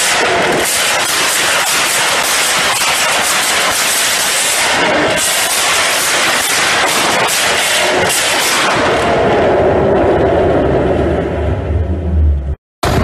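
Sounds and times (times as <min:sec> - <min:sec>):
car exhaust popping and crackling: 0:00.0 - 0:13.0.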